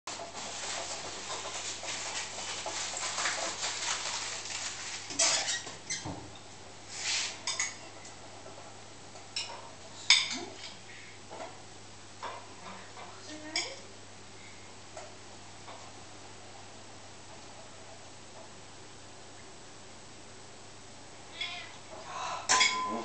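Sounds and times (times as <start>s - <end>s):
dishes and cutlery clinking: 7.4s - 8.1s, 9.3s - 11.6s, 22.5s - 23.0s.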